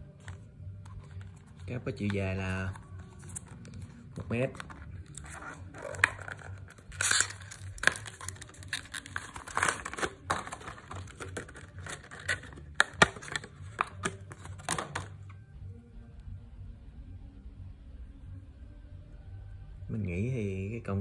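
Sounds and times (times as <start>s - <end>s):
plastic crinkling: 0.9s - 15.1s
cardboard box handling: 2.0s - 15.1s.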